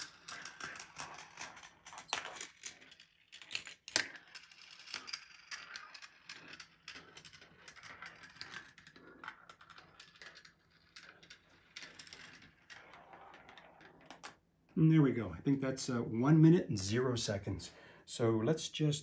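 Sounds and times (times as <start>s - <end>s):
marbles rolling and clattering on track: 0.0s - 14.4s.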